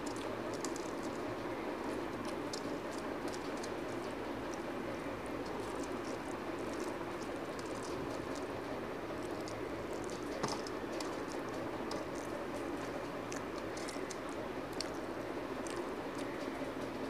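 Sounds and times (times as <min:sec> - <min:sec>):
steady background hum: 0:00.0 - 0:17.0
wet chewing mouth clicks: 0:11.0 - 0:16.6.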